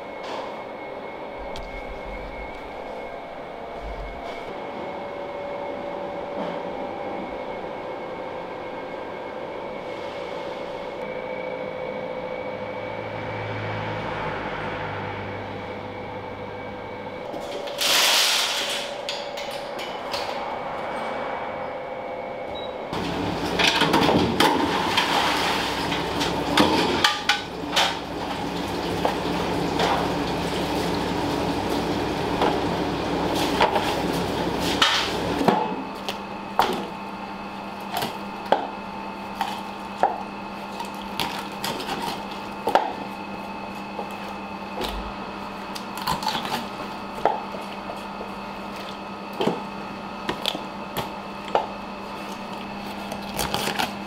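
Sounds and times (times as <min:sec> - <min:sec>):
ventilation hum: 0:00.0 - 0:54.0.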